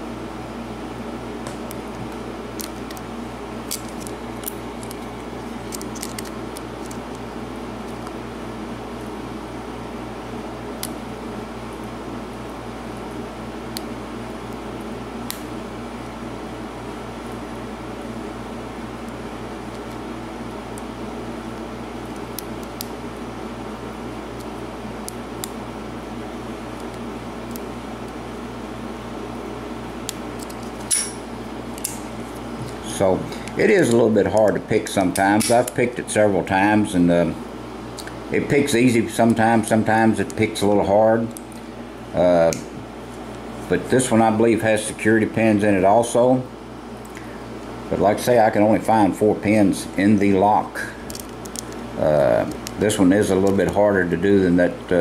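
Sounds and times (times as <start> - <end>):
steady electrical hum: 0.0 - 55.0.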